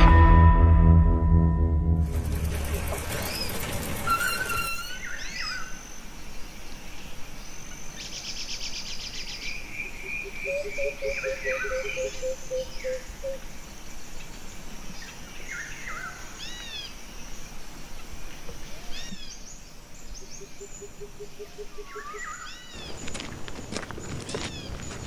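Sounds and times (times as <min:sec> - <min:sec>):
birds chirping and trilling: 0:02.2 - 0:17.6, 0:18.6 - 0:25.0
outdoor hiss: 0:13.0 - 0:20.4.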